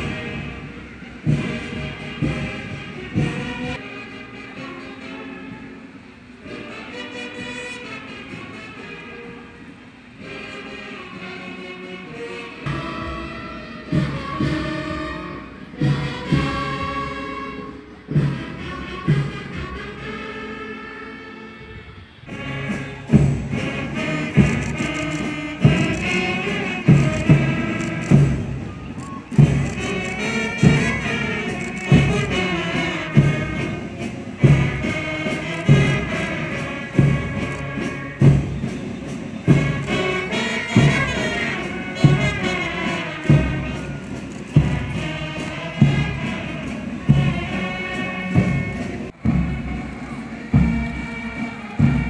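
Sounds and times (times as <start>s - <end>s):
heavy drum beat: 0.0s - 3.8s, 22.3s - 52.0s
band playing slow march: 0.0s - 52.0s.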